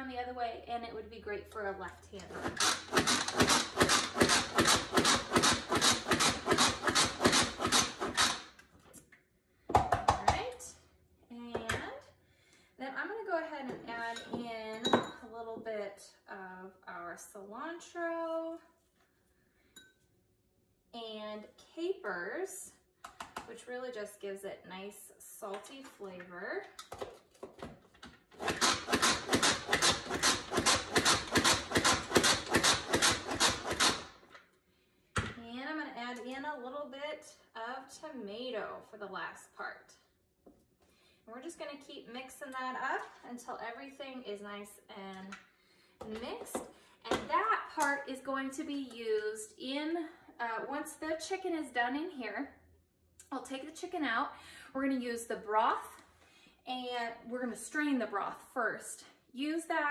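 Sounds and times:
blades chopping vegetables: 0:02.2 - 0:08.4, 0:28.4 - 0:34.1
food processor plunger clacking: 0:02.4 - 0:08.4.

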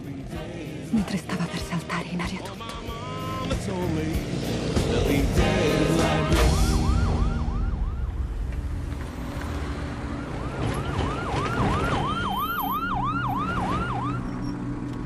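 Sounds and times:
police siren yelping: 0:06.2 - 0:08.5, 0:10.1 - 0:14.5.

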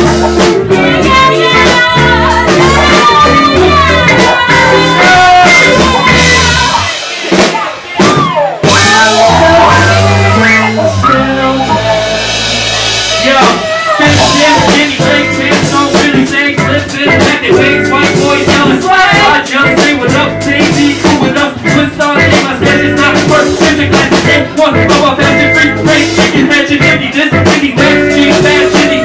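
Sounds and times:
jazz-funk band playing: 0:00.0 - 0:29.0
woman singing: 0:00.7 - 0:12.2, 0:13.7 - 0:29.0.

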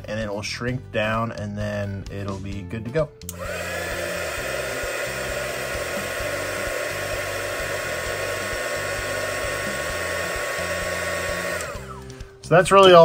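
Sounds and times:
heat gun fan whine: 0:03.2 - 0:12.4.

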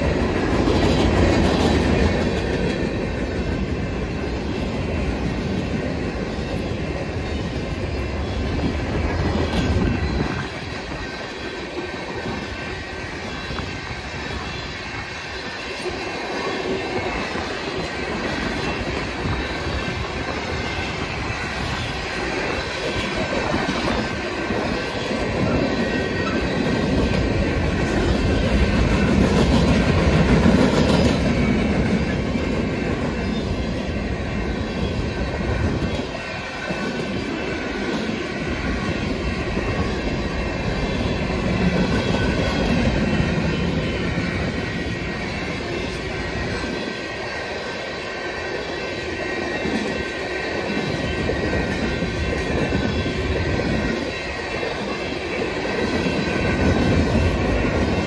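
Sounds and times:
train wheels rumbling and clacking: 0:00.0 - 0:58.0.

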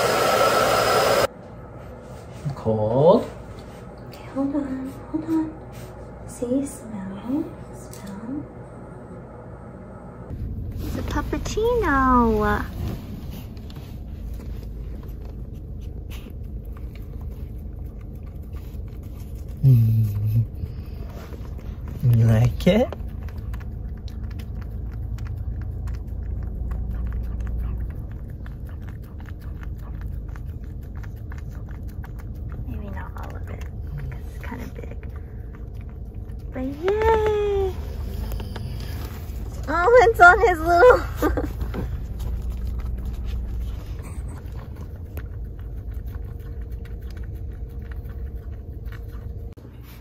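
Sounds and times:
low steady rumble: 0:01.2 - 0:50.0
puppy licking and lapping: 0:10.8 - 0:50.0.

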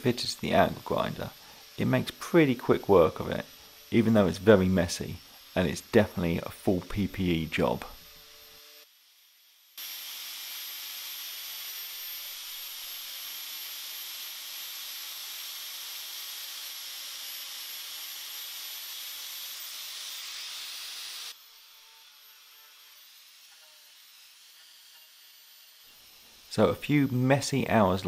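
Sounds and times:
wire wheel grinder scrubbing metal: 0:00.0 - 0:08.2.

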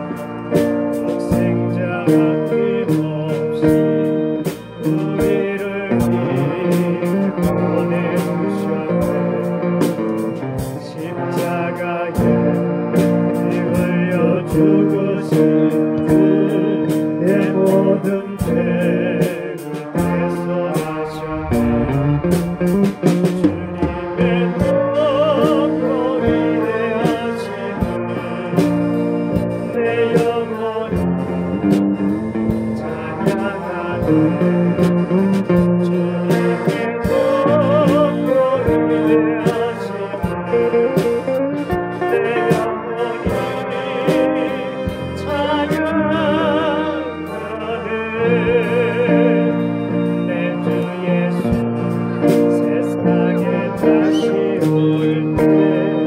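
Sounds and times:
church band playing a hymn: 0:00.0 - 0:56.0
cymbal or drum strokes: 0:19.2 - 0:24.8.

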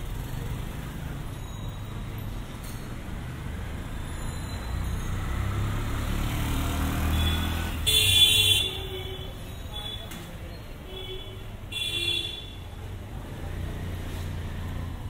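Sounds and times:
motorbike and rickshaw traffic: 0:00.0 - 0:15.0
vehicle horn blast: 0:07.1 - 0:09.3.

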